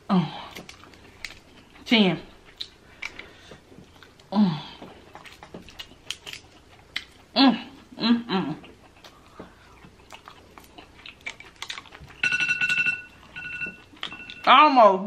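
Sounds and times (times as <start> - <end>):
wet chewing: 0.4 - 12.2
crab shells cracking and crunching: 0.5 - 1.6, 5.1 - 7.2, 9.9 - 12.2.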